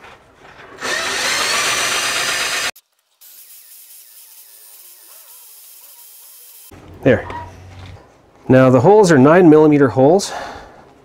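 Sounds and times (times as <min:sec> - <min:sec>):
drill motor whining: 0:00.8 - 0:06.7.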